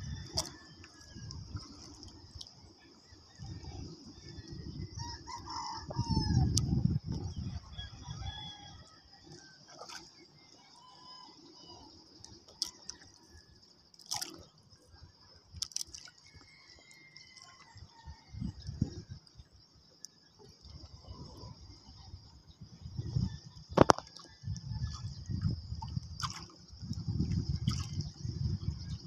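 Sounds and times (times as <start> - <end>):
low rumble of wind and water: 0.0 - 29.0
rooster crowing: 5.0 - 6.5.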